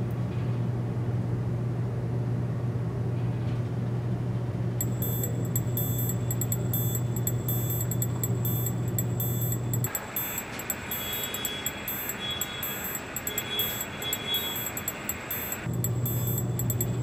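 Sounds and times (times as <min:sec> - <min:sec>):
low hum: 0:04.8 - 0:17.0
music with ticking beat: 0:04.8 - 0:17.0.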